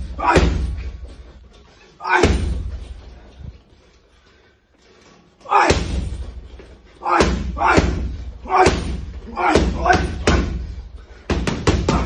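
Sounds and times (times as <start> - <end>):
gloves punching heavy bag: 0.0 - 1.2, 2.1 - 2.9, 7.1 - 12.0.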